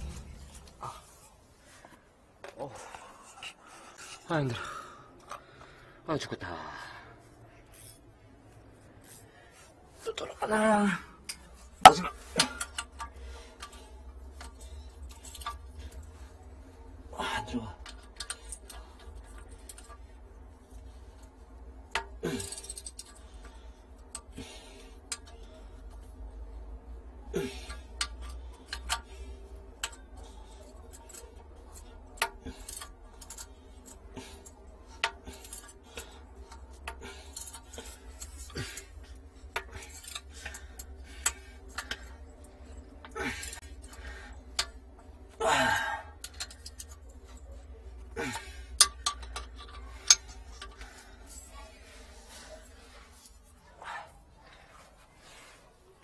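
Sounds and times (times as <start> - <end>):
steady low hum: 0.0 - 56.0
wrench clinking on metal pipe: 48.1 - 51.0.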